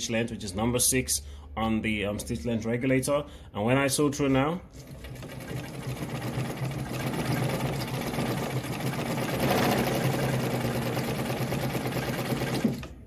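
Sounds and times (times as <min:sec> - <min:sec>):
sewing machine running: 0:04.7 - 0:13.0.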